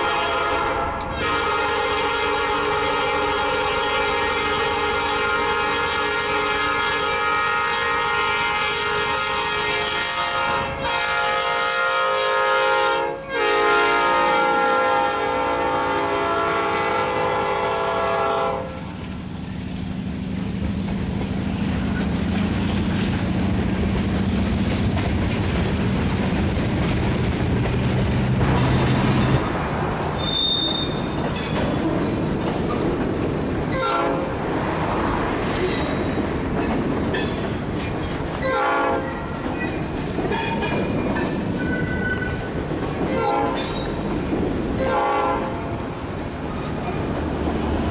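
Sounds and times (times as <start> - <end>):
locomotive air horn blasts: 0.0 - 18.9, 33.7 - 34.3, 38.4 - 39.3, 43.1 - 43.7, 44.8 - 45.8
train cars clattering over rail joints: 20.1 - 47.9
high wheel squeal: 28.5 - 29.4, 30.2 - 32.9, 41.5 - 42.6.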